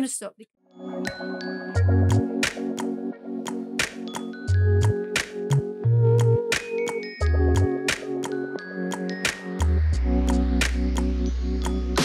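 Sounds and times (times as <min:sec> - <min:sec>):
electronic music with bass: 0:01.8 - 0:08.4, 0:09.4 - 0:12.0.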